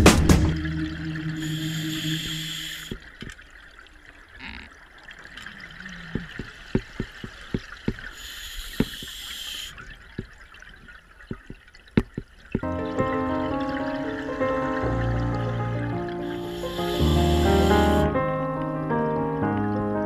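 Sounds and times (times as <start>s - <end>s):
underwater bubbles gurgling: 0.0s - 20.0s
regulator inhale hiss: 1.4s - 3.0s, 8.1s - 9.8s, 15.4s - 18.2s.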